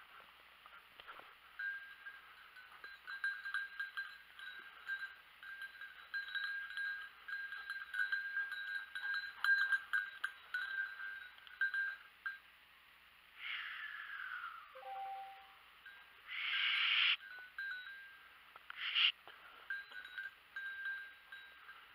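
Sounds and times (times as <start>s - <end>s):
dog collar bell jangling: 1.6s - 12.4s, 17.2s - 18.3s, 19.7s - 21.9s.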